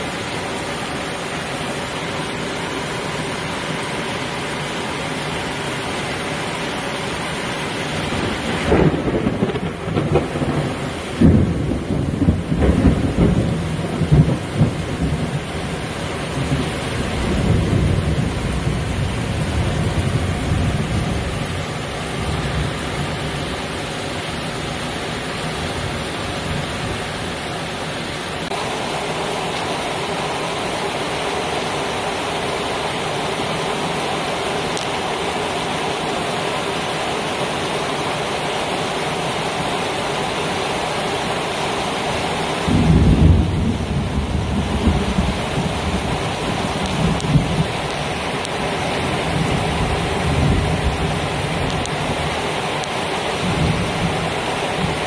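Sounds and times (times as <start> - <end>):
heavy rain pouring: 0.0 - 55.0
thunder rumbling and cracking: 8.0 - 23.7, 42.6 - 52.4.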